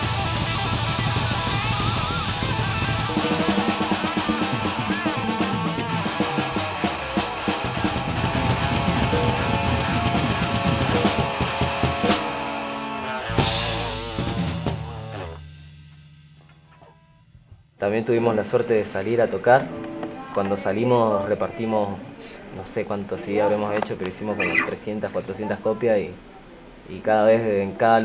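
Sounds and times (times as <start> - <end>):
rock band playing live: 0.0 - 15.4
electric guitar: 0.0 - 15.5, 19.6 - 20.4
drum kit beat: 0.0 - 16.0.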